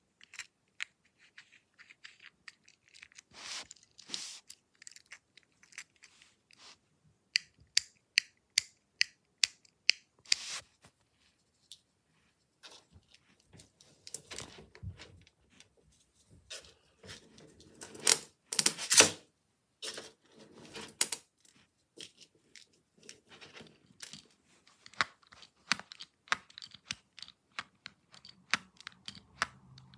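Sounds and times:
plastic clicks and rattles: 0:22.0 - 0:29.9.

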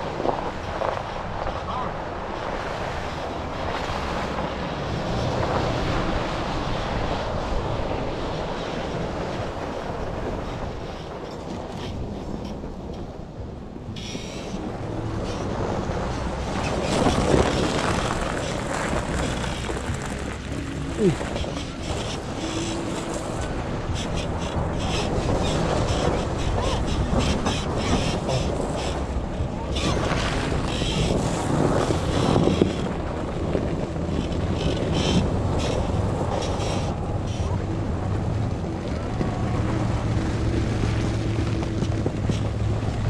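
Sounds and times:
engine and tyres rumbling: 0:00.0 - 0:43.0
leaf springs creaking: 0:13.8 - 0:43.0.

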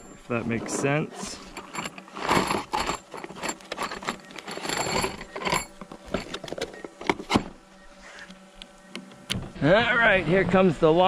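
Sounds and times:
screws rattling in a box: 0:00.7 - 0:07.4.

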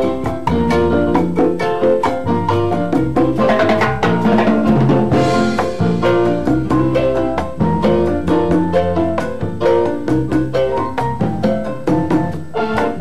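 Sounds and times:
congas and drum kit: 0:00.0 - 0:13.0
salsa band playing: 0:00.0 - 0:13.0.

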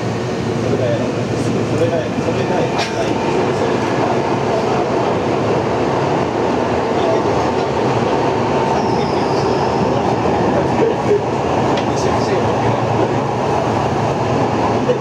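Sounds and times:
subway train wheels rumbling: 0:00.0 - 0:15.0
faint high squeal: 0:08.7 - 0:10.0.

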